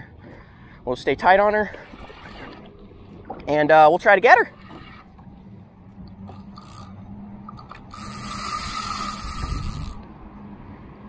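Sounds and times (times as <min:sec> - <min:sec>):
fishing reel whirring: 0:06.3 - 0:10.1.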